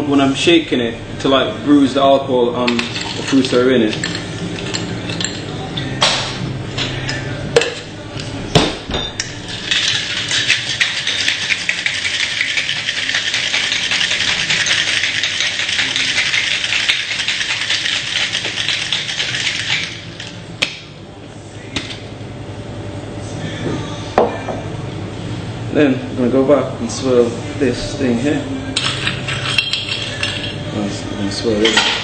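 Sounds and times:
ice rattling in cocktail shaker: 0:02.7 - 0:05.4, 0:09.4 - 0:20.4.

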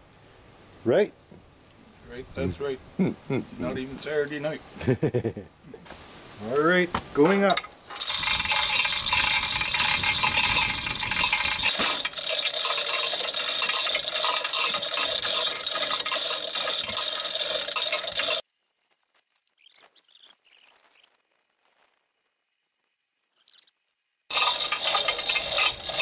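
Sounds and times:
chain hoist rattling: 0:07.5 - 0:18.4, 0:24.3 - 0:26.0.

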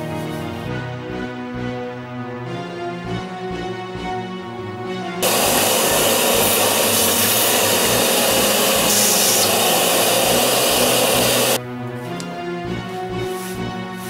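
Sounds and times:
background music: 0:00.0 - 0:14.0
vacuum cleaner on steel floor: 0:05.2 - 0:11.6.

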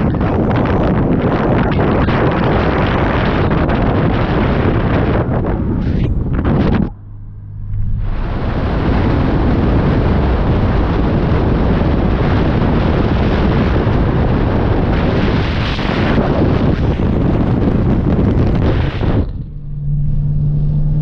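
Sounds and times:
wind noise on microphone: 0:00.0 - 0:21.0
road and car noise: 0:02.4 - 0:21.0.

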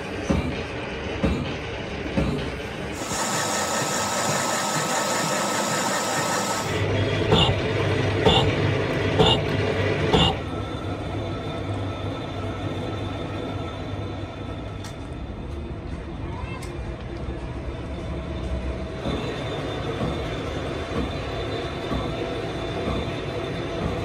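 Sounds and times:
machinery hum: 0:02.6 - 0:16.1
metal lathe cutting steel: 0:02.9 - 0:07.5
gear shaper cutting strokes: 0:03.0 - 0:06.8.

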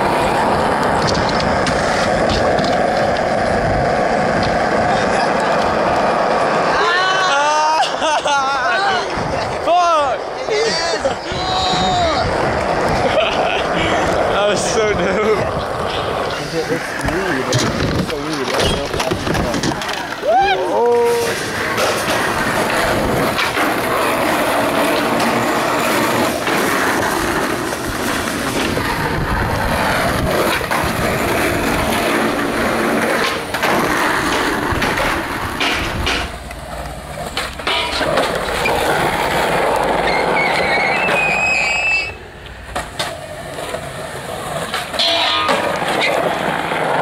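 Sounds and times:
skateboard clacks popping and landing: 0:00.0 - 0:06.6, 0:15.6 - 0:20.3, 0:21.1 - 0:41.4, 0:42.4 - 0:47.0
skateboard wheels rolling on asphalt: 0:00.0 - 0:47.0.

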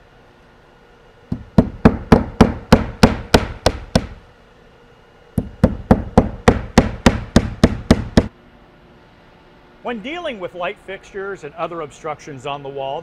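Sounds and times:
hammer driving nails: 0:01.3 - 0:04.2, 0:05.4 - 0:08.3.

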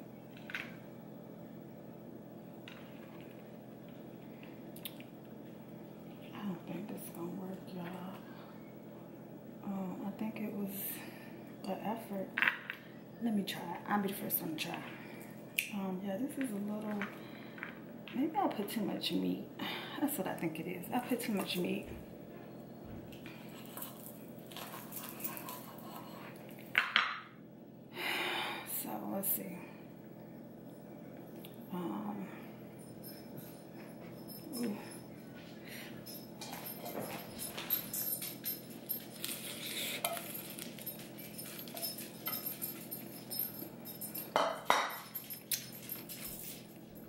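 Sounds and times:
lettuce leaves crinkling: 0:39.0 - 0:42.5.

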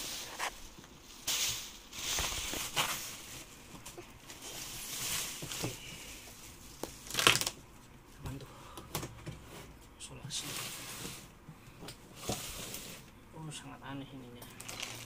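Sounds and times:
plastic wrap crinkling: 0:00.0 - 0:07.6, 0:14.6 - 0:15.0.

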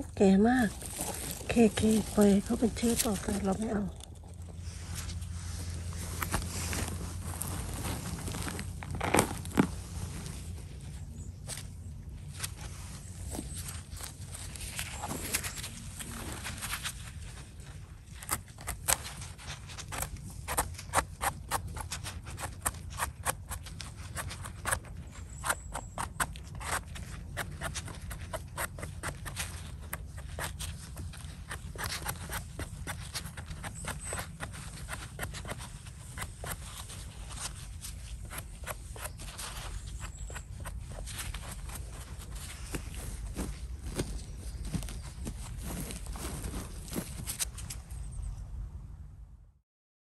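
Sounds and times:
knife scraping mushroom stem: 0:18.0 - 0:43.4.

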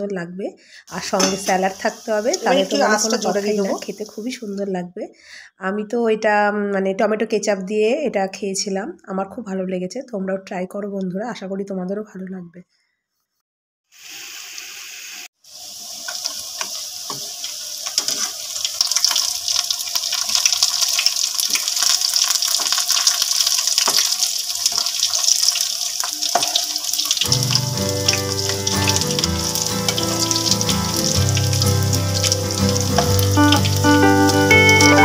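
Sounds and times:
food deep-frying in oil: 0:01.0 - 0:04.6, 0:13.9 - 0:35.0
background music: 0:02.3 - 0:03.8, 0:27.2 - 0:35.0.

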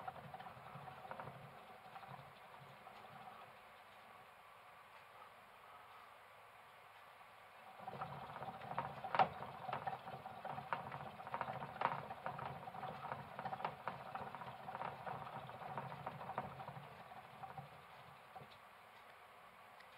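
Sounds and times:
hamster wheel spinning: 0:00.0 - 0:04.2, 0:07.6 - 0:18.7.

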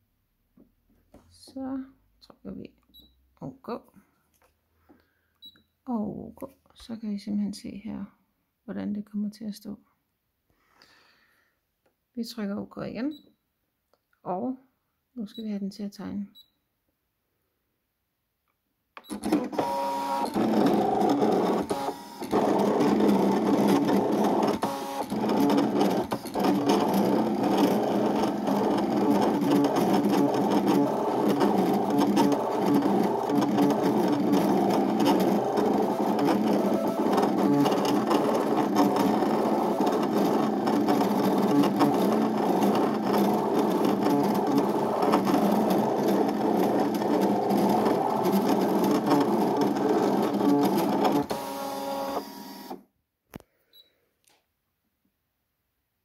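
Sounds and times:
cutting machine motors whirring: 0:19.0 - 0:52.8.

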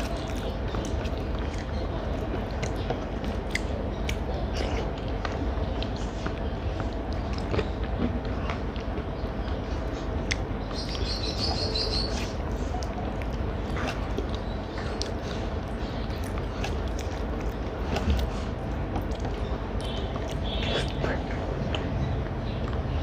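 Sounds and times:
chewing: 0:00.0 - 0:23.0
bird chirping trill: 0:10.6 - 0:12.4.

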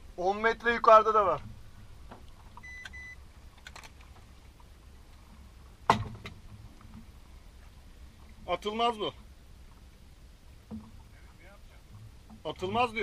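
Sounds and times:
sharp knock: 0:05.9 - 0:06.4.

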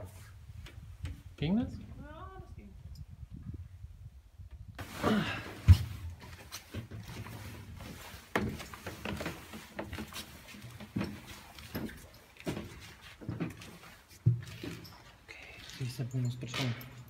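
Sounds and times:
footsteps on rubble: 0:06.3 - 0:17.0.

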